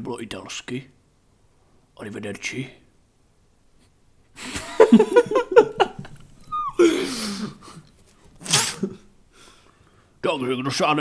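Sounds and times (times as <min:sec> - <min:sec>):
person laughing: 0:04.4 - 0:07.8
breathy groan: 0:06.8 - 0:07.7.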